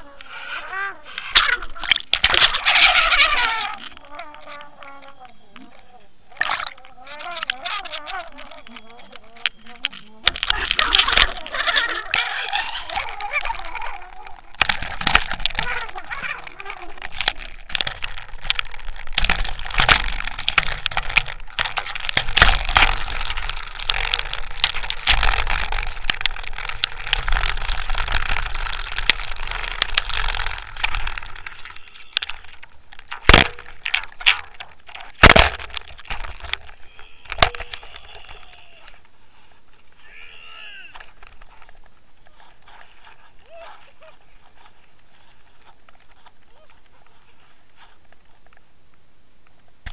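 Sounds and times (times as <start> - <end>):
water splashing and sloshing: 6.3 - 8.1.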